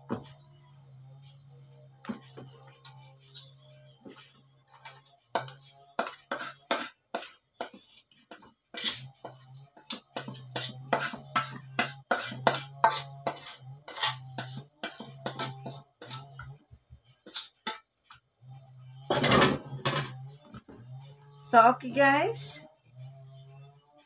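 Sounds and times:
spatula scraping metal wok: 2.7s - 18.2s, 18.9s - 20.4s.

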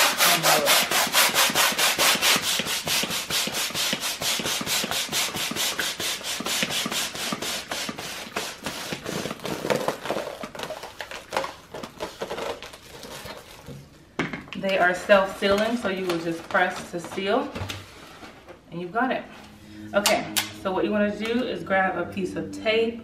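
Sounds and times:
balloon hand pump strokes: 0.0s - 9.6s.

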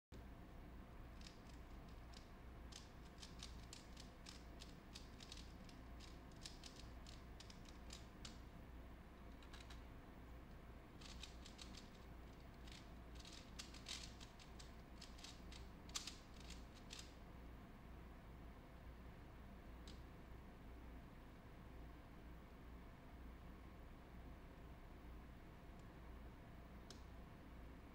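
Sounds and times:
faint low hum: 0.1s - 27.9s
plastic puzzle cube clicking: 1.2s - 8.4s, 11.0s - 17.2s.

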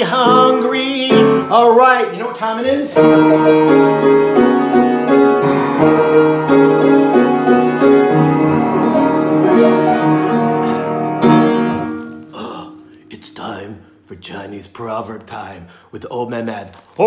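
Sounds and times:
piano chords: 0.0s - 15.1s.

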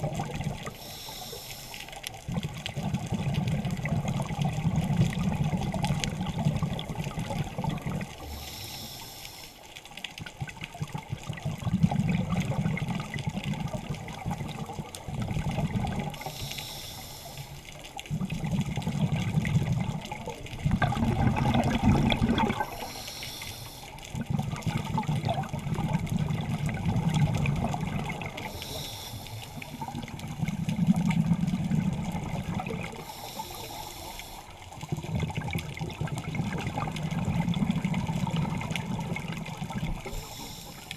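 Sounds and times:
bubbling gurgling exhales: 0.0s - 1.2s, 2.2s - 9.0s, 10.3s - 16.7s, 18.0s - 40.8s
hissing regulator inhales: 0.7s - 2.0s, 8.2s - 9.7s, 16.2s - 17.7s, 22.6s - 24.0s, 28.4s - 29.9s, 33.0s - 34.6s, 40.1s - 40.9s.

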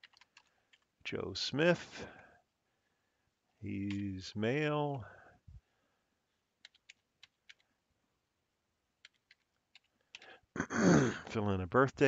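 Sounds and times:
computer keyboard typing: 0.0s - 0.9s, 6.6s - 7.7s, 9.0s - 10.3s.

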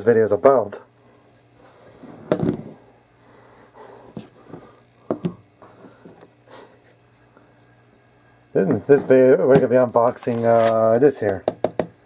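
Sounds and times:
handling rustles: 10.0s - 10.9s
device knocking on tabletop: 11.4s - 12.0s.

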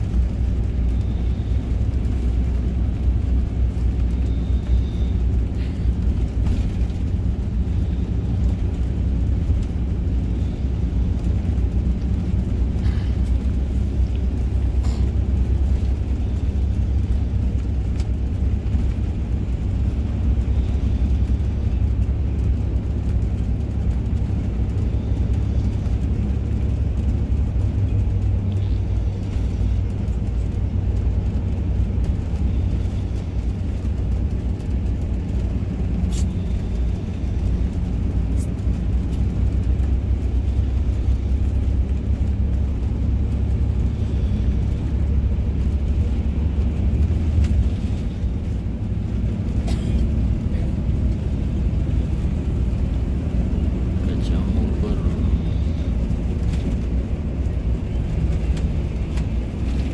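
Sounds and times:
bus engine and tyre rumble: 0.0s - 59.9s.

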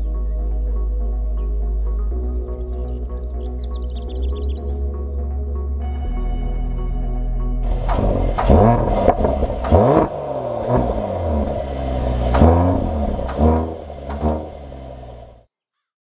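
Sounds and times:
engine revving: 7.6s - 15.4s
sharp clicks: 7.8s - 10.1s, 12.3s - 14.5s.

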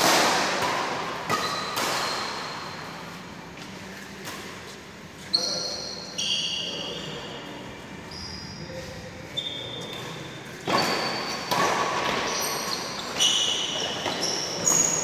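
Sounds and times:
sports shoes squeaking: 1.3s - 2.7s, 5.2s - 15.0s.

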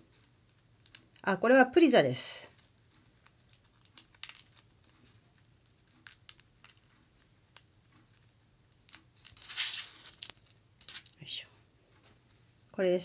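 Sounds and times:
crinkling rustle: 2.4s - 11.3s
dry petals crackling and tearing: 2.5s - 11.2s.

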